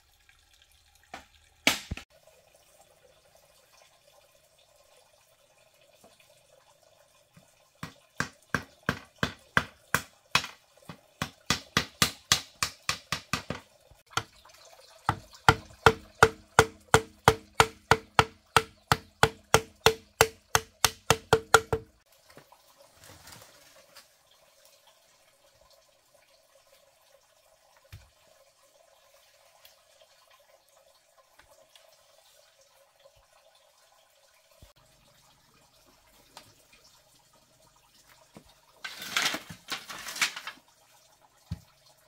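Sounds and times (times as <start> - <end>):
hammer striking nails into bamboo: 7.8 - 13.6, 15.1 - 21.9.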